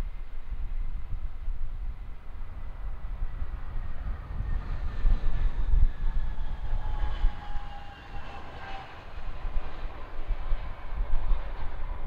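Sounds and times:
wind rumble on microphone: 0.0s - 12.0s.

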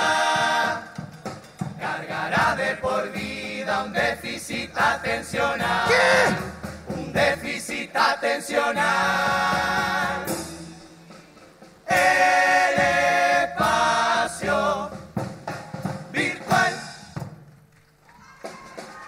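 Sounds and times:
choir singing: 0.0s - 1.1s, 1.8s - 11.1s, 11.9s - 15.2s, 16.1s - 17.0s
musical accompaniment: 0.0s - 19.0s.

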